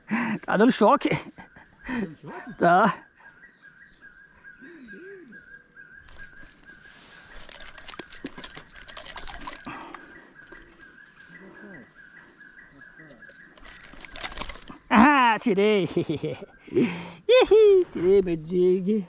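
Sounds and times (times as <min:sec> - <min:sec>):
handling clicks and rustling: 0:06.1 - 0:11.0, 0:13.0 - 0:14.9.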